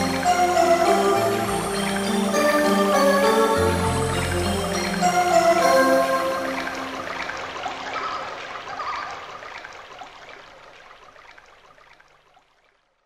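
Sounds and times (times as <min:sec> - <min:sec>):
soundtrack music held notes: 0:00.0 - 0:07.6.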